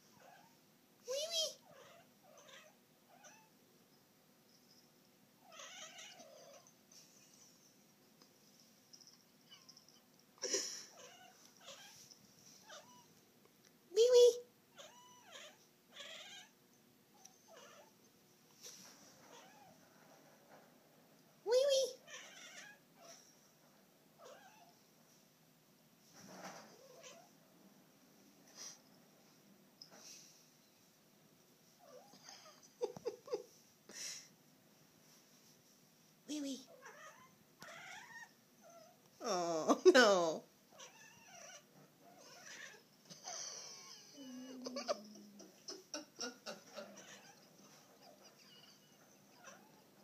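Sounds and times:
cat meowing and yowling: 0:14.7 - 0:16.5, 0:46.8 - 0:49.9.

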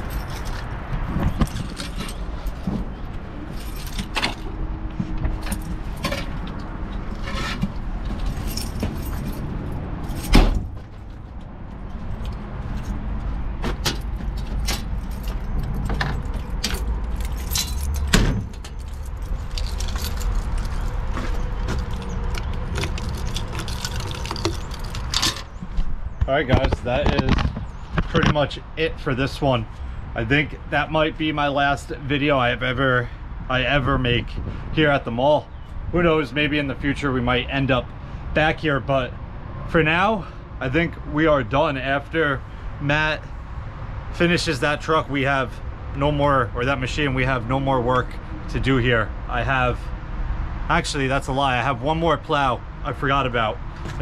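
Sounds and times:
keys jangling: 0:00.0 - 0:00.7, 0:03.5 - 0:04.5, 0:08.2 - 0:10.4, 0:13.9 - 0:25.5
diesel engine running: 0:01.9 - 0:25.8
metal clicks and knocks: 0:13.6 - 0:25.5.

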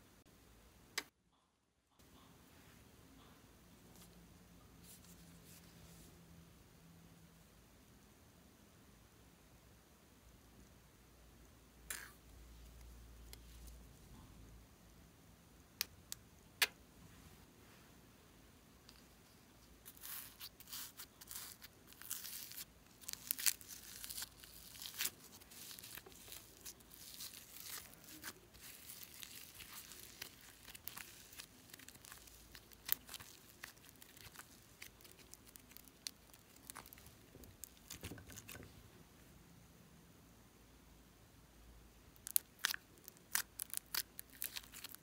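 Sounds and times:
sticky slime crackles and clicks: 0:20.0 - 0:38.6, 0:42.2 - 0:45.0.

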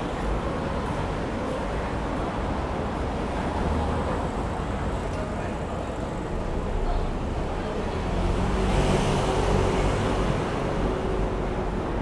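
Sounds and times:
road traffic noise: 0:00.0 - 0:12.0
car passing by: 0:08.1 - 0:11.4.

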